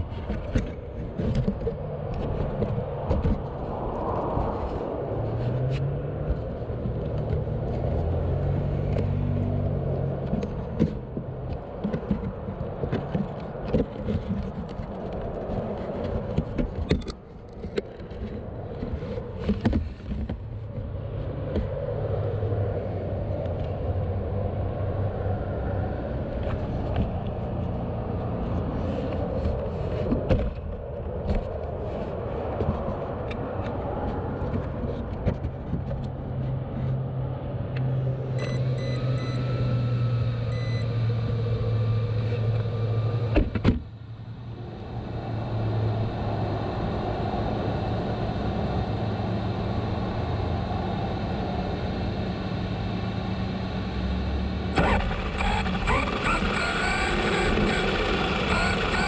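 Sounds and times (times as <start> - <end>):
motor vehicle rumble: 0.0 - 59.0
short high beeps: 38.4 - 39.5, 40.5 - 40.9.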